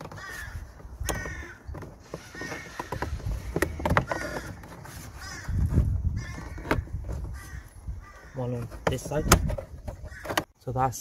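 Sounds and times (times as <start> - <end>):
bird calls: 0.0 - 10.6.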